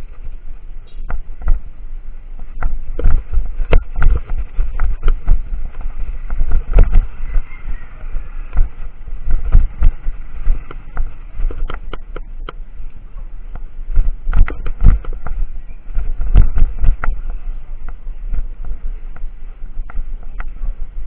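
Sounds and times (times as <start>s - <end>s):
bicycle rolling on concrete: 0.0s - 21.0s
bike rattling over bumps: 0.0s - 21.0s
wind rumbling on microphone: 0.0s - 21.0s.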